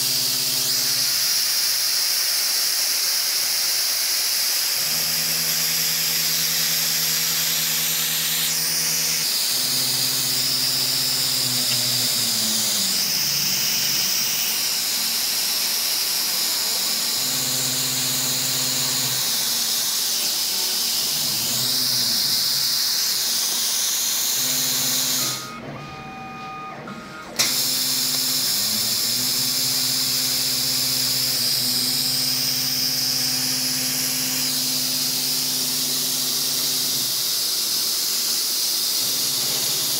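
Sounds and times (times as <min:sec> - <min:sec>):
air hissing from cutting nozzle: 0:00.2 - 0:25.4.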